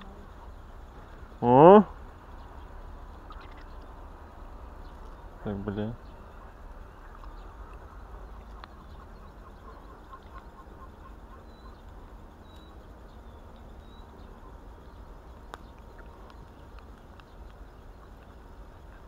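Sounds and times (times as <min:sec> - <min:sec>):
bird chirps: 0:02.3 - 0:19.0
thin high bird calls: 0:02.3 - 0:19.0.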